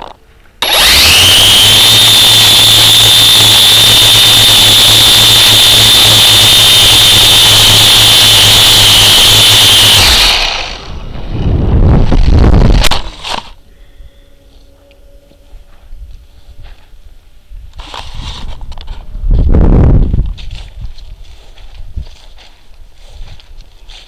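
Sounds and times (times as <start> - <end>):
low hum: 0.0 - 17.8
small electric motor whining: 0.6 - 11.4.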